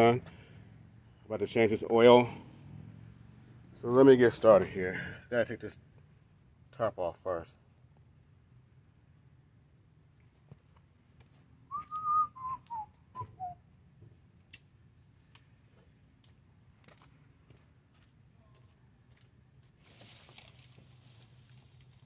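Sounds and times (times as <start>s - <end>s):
person whistling: 11.7s - 13.6s.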